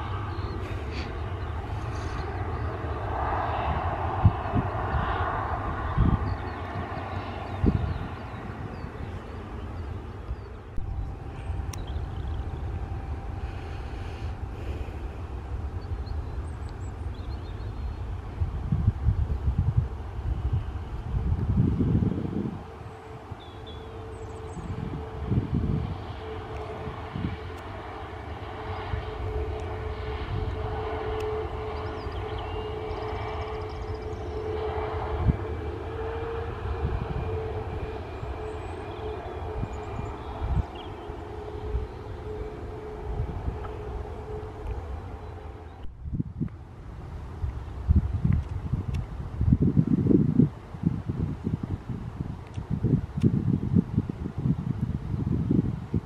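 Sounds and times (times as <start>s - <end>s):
distant jet engines rumbling: 0.0s - 56.0s.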